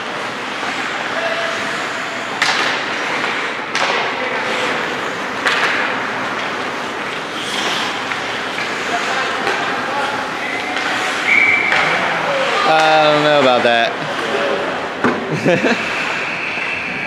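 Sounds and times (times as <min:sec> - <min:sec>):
skates scraping on ice: 0:00.0 - 0:14.8
hockey stick and puck knocks: 0:02.4 - 0:04.7, 0:05.4 - 0:06.6.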